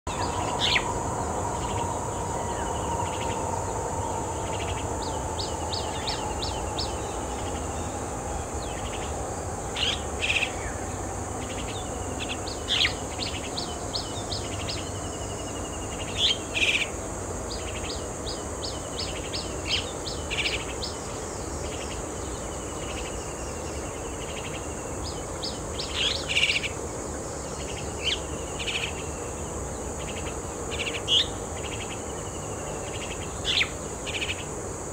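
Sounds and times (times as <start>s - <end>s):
birds calling: 0.1s - 17.0s
steady high hiss: 0.1s - 34.9s.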